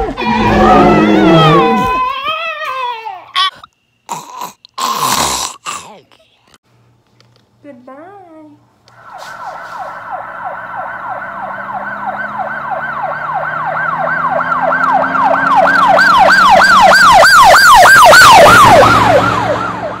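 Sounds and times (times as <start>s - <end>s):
electronic swooping siren tone: 0.1s - 2.0s, 8.9s - 20.0s.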